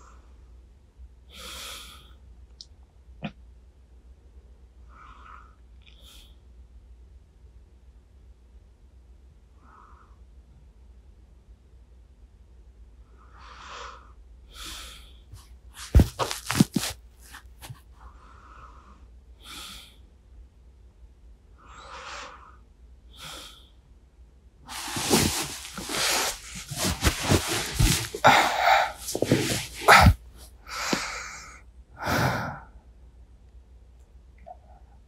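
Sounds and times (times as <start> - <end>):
soft sleepy breathing: 13.1 - 20.1, 21.6 - 23.8, 24.7 - 32.9.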